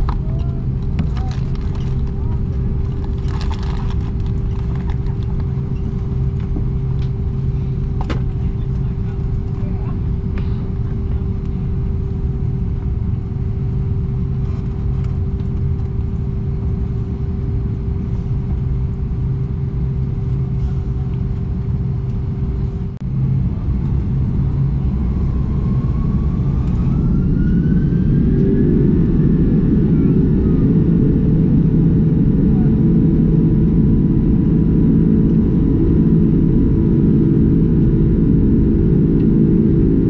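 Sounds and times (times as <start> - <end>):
jet engines rumbling: 0.0 - 40.0
jet engines spooling up whine: 0.0 - 40.0.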